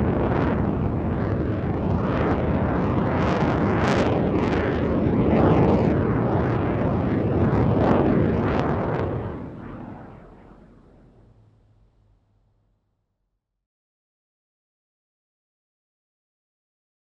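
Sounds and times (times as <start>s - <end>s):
jet engine roar: 0.0s - 12.1s.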